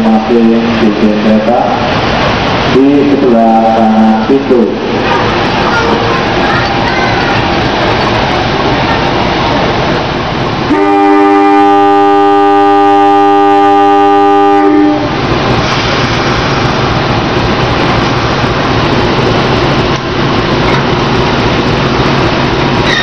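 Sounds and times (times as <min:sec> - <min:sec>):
train engine running: 0:00.0 - 0:23.0
locomotive air horn chord: 0:10.7 - 0:15.2.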